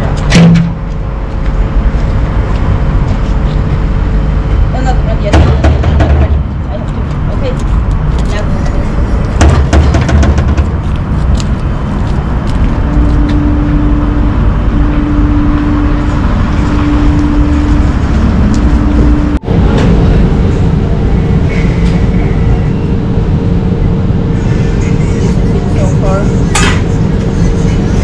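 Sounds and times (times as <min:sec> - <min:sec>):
extractor hood fan humming: 0:00.0 - 0:28.0
low rumble: 0:00.0 - 0:28.0
faint hum: 0:10.8 - 0:28.0.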